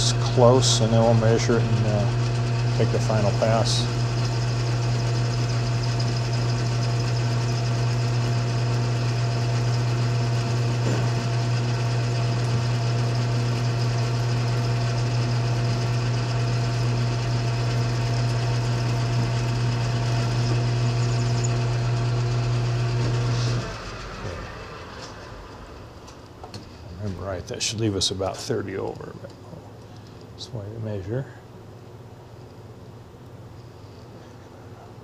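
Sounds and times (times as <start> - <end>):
metal lathe humming: 0.0 - 26.9.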